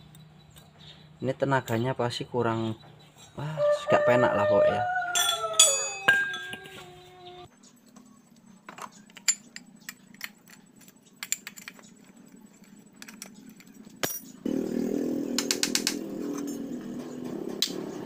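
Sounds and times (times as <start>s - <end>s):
metallic clicks of engine parts: 7.8s - 14.4s, 15.4s - 16.6s.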